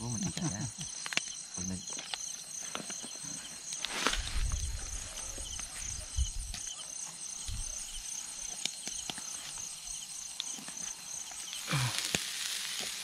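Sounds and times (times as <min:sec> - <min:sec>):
insects chirping: 0:00.0 - 0:13.0
oil sizzling on hot charcoal: 0:06.4 - 0:13.0.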